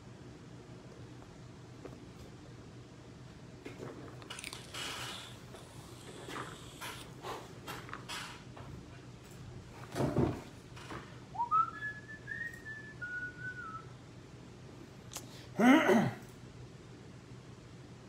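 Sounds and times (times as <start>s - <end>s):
person whistling: 11.4s - 13.9s.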